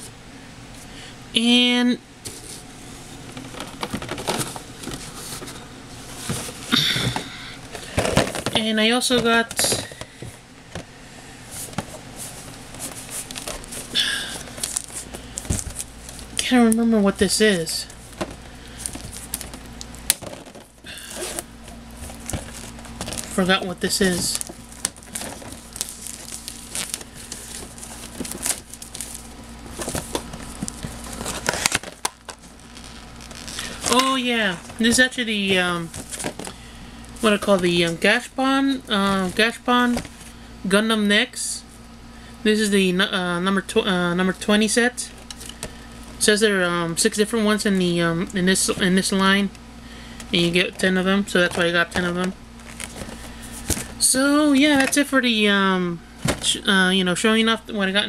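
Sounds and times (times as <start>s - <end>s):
cardboard and packaging rustling: 2.2s - 40.4s, 50.2s - 55.1s, 56.2s - 56.6s
plastic wrapping crinkling: 11.5s - 16.8s, 17.8s - 38.3s, 51.4s - 54.0s.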